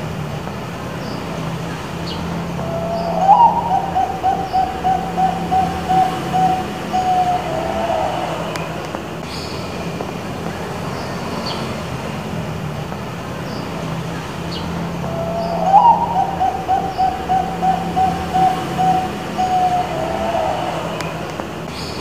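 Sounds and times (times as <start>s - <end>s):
steady low hum: 0.0s - 10.8s
dove cooing: 2.3s - 9.1s, 14.8s - 21.8s.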